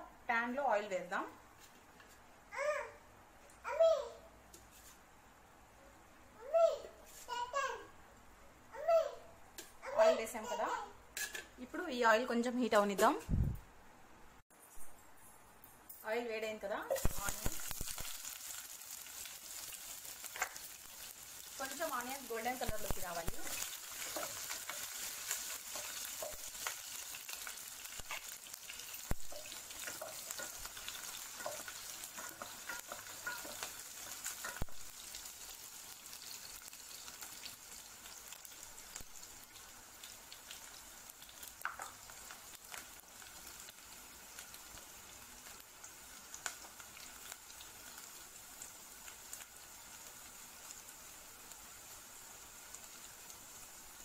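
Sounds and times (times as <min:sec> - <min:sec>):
onions sizzling in oil: 0:16.2 - 0:54.0.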